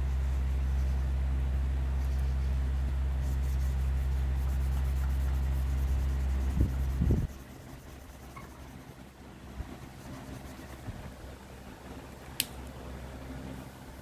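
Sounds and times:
steady low hum: 0:00.0 - 0:14.0
marker scratching on paper: 0:02.0 - 0:02.6, 0:03.2 - 0:11.1.

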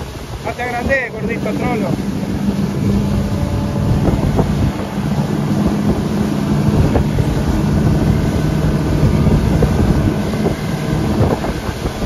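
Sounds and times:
outboard motor running: 0:00.0 - 0:12.0
water rushing past hull: 0:00.0 - 0:12.0
wind on microphone: 0:00.0 - 0:12.0.

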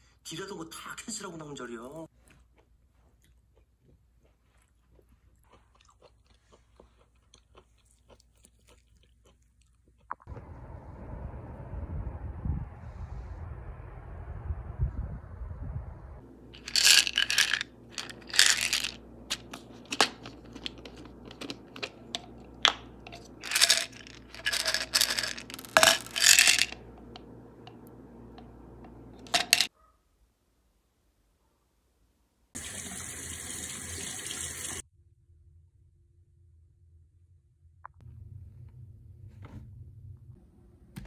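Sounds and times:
tablets rattling in plastic bottle: 0:16.6 - 0:28.5, 0:29.2 - 0:29.7.

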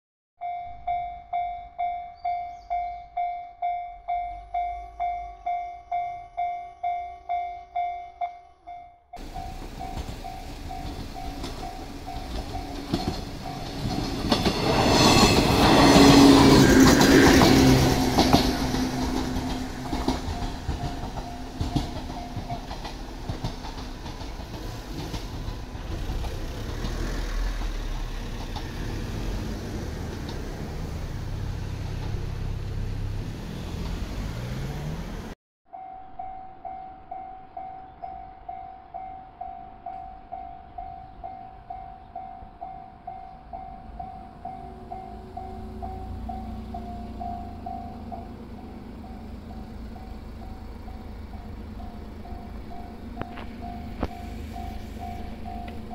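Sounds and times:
level-crossing bell ringing: 0:00.4 - 0:15.8, 0:16.5 - 0:22.8, 0:35.7 - 0:55.9
electric train passing: 0:00.4 - 0:55.9
train motors running: 0:09.2 - 0:34.3, 0:44.7 - 0:55.9.

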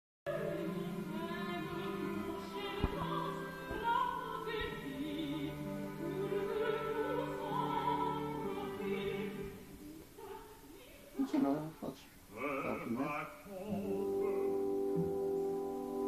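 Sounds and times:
orchestra: 0:00.3 - 0:10.2, 0:13.6 - 0:16.0
opera singer with vibrato: 0:00.3 - 0:11.1, 0:12.3 - 0:14.8.

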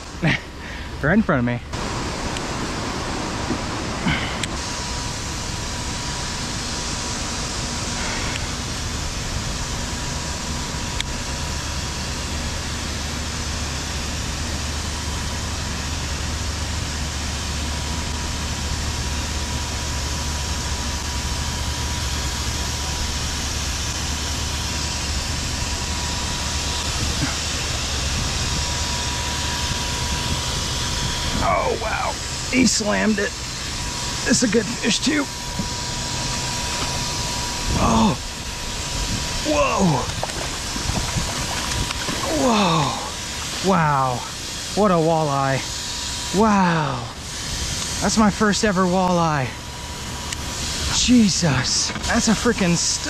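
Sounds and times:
high-pitched hum: 0:00.0 - 0:53.0
low mechanical rumble: 0:00.0 - 0:53.0
hiss: 0:03.4 - 0:09.8.

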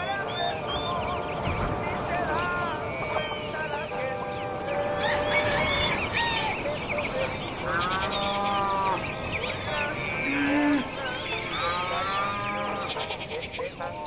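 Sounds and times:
livestock calling: 0:00.0 - 0:14.0
small birds chirping: 0:00.0 - 0:14.0.

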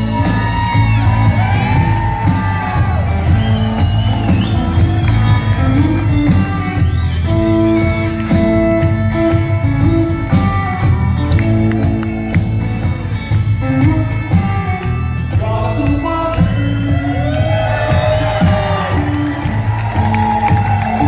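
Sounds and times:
bagpipes playing slow melody: 0:00.0 - 0:17.3
live band playing: 0:00.0 - 0:21.0
person singing: 0:15.3 - 0:19.4.

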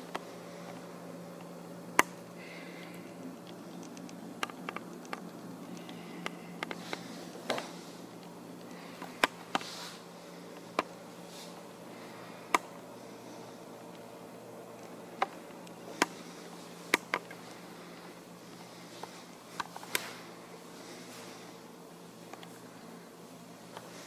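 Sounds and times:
computer fans humming: 0:00.0 - 0:24.0
sharp clicks: 0:02.0 - 0:02.2.

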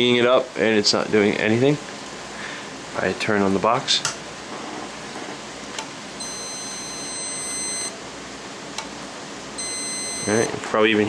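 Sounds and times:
multimeter continuity beep: 0:06.2 - 0:08.0, 0:09.6 - 0:10.5.

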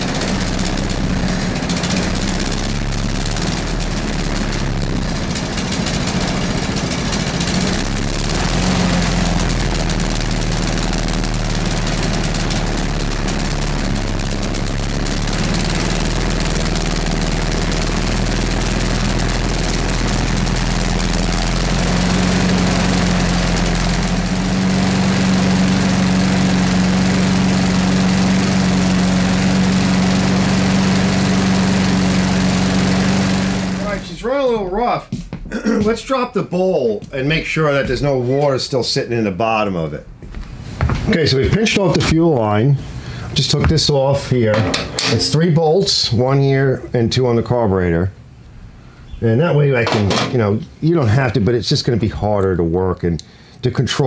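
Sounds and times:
lawn mower engine running: 0:00.0 - 0:34.2.

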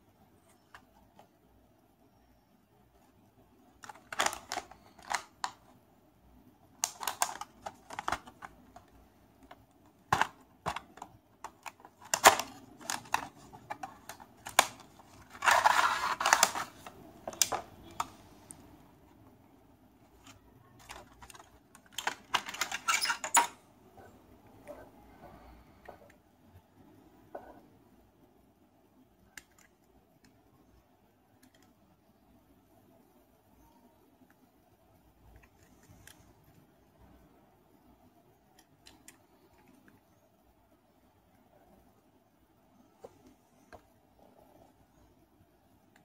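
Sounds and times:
clicks and scrapes of card and plastic: 0:09.5 - 0:18.6
cardboard rustle: 0:11.6 - 0:17.5.

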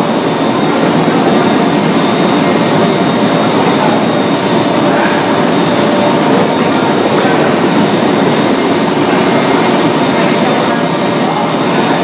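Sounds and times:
machine running with high whine: 0:00.0 - 0:12.0.

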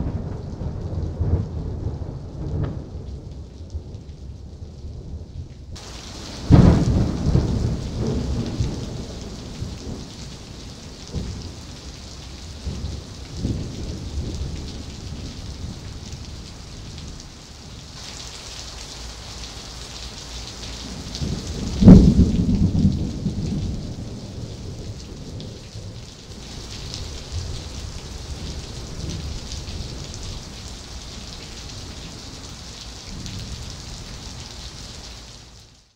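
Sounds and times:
thunder cracks and rumbling: 0:00.0 - 0:11.8, 0:12.4 - 0:17.2, 0:20.8 - 0:26.0
steady rain hissing: 0:00.0 - 0:35.9.

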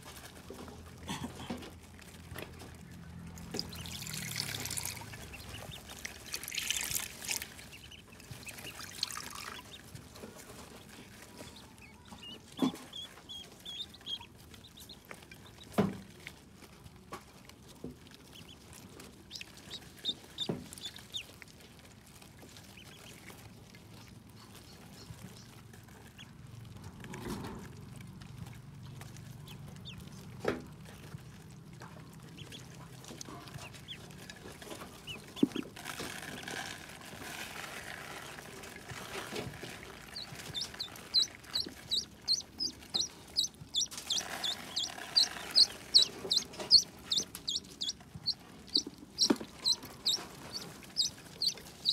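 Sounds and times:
ducklings peeping: 0:02.2 - 0:15.8, 0:18.1 - 0:21.6, 0:22.2 - 0:26.4, 0:28.4 - 0:37.0, 0:38.2 - 0:51.9.

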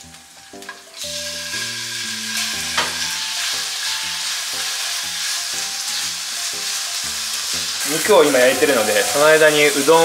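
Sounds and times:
chicken sizzling in hot oil: 0:00.0 - 0:10.0
spatula stirring in frying pan: 0:02.2 - 0:10.0.

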